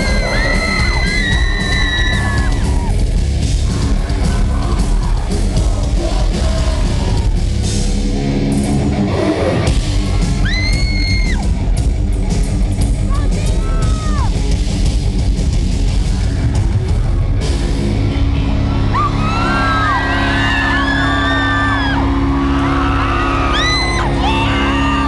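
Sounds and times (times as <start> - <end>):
high-pitched screams: 0.0 - 2.9
heavy rock band playing: 0.0 - 25.0.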